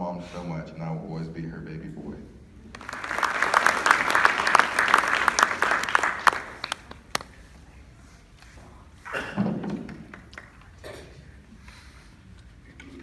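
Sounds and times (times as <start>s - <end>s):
audience applauding: 2.7s - 7.3s, 9.7s - 10.8s.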